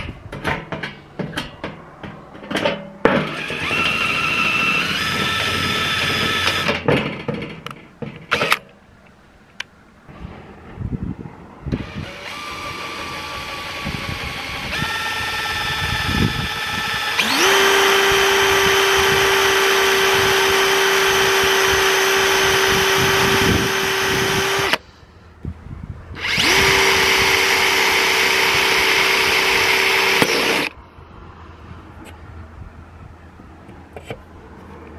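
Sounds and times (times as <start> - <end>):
cordless drill whining: 3.2 - 6.7, 11.8 - 24.8, 26.2 - 30.8.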